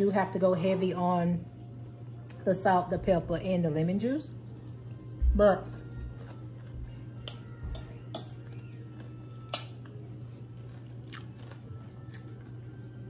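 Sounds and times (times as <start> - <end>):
low hum: 0.0 - 13.0
crunchy chewing: 5.6 - 7.0, 8.4 - 12.9
fork clinking against bowl: 7.2 - 8.5, 9.5 - 9.9.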